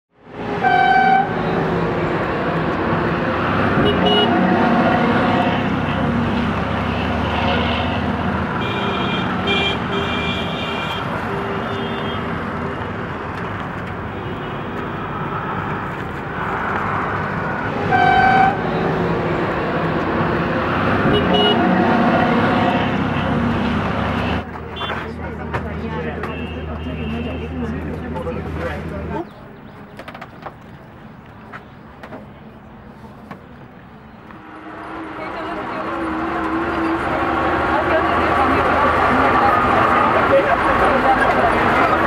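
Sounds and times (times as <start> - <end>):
city road traffic: 0.1 - 42.0
vehicle horns honking: 0.5 - 1.8, 3.6 - 12.7, 14.0 - 15.1, 17.7 - 19.2, 21.0 - 25.0, 26.2 - 27.7.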